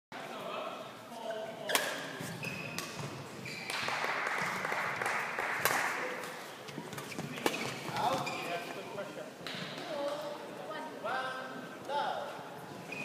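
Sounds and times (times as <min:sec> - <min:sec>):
racket hitting shuttlecock: 0:01.7 - 0:04.0
applause: 0:03.7 - 0:06.2.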